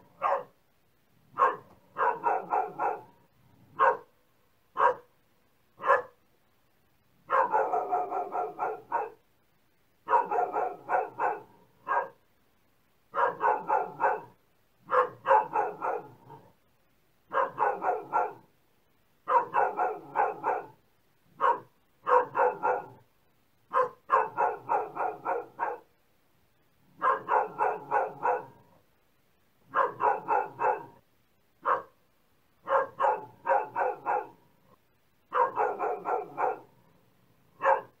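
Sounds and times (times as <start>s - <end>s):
dog barking: 0.0s - 0.6s, 1.3s - 4.1s, 4.7s - 5.2s, 5.8s - 6.2s, 7.2s - 9.2s, 10.0s - 12.2s, 13.1s - 16.5s, 17.3s - 18.5s, 19.2s - 23.1s, 23.7s - 25.9s, 26.9s - 28.8s, 29.7s - 31.0s, 31.6s - 32.0s, 32.6s - 34.4s, 35.3s - 36.8s, 37.5s - 38.0s.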